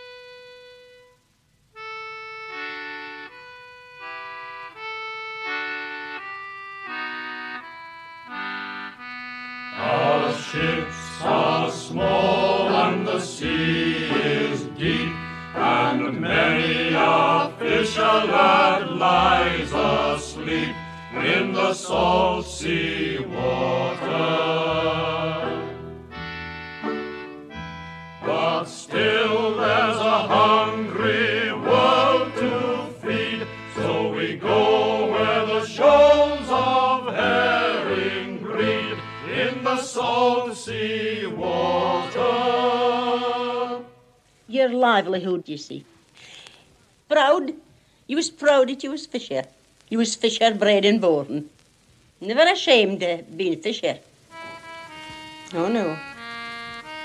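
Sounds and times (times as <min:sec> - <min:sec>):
folk singing with instruments: 0:09.7 - 0:26.1, 0:28.2 - 0:44.3.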